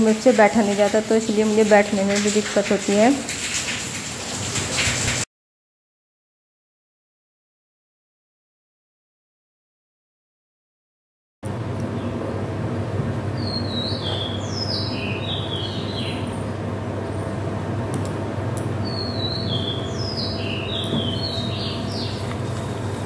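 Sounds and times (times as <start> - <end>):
steady low hum: 11.4 - 23.0
songbird singing: 13.4 - 16.5, 18.8 - 23.0.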